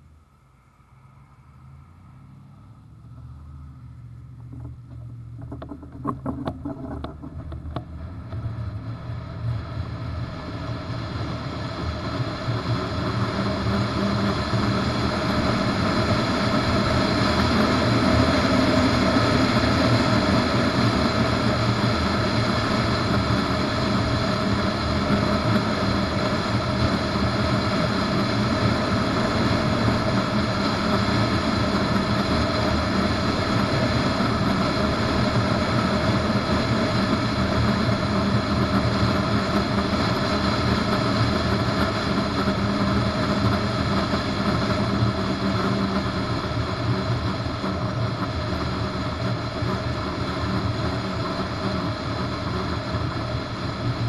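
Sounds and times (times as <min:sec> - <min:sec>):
wind and road noise: 0:00.0 - 0:54.0.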